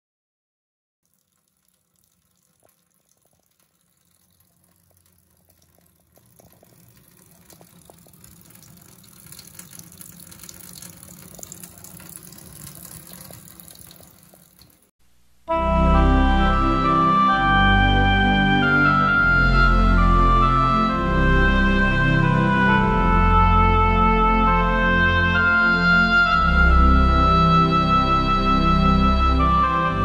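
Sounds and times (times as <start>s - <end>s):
water splashing into steel sink: 1.0s - 14.9s.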